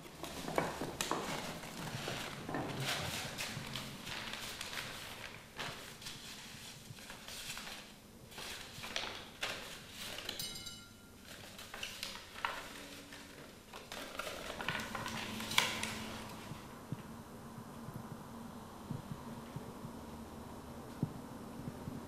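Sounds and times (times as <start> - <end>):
hands handling paper: 0.0 - 10.6, 11.2 - 16.7
clinks in a ceramic bowl: 10.4 - 11.1.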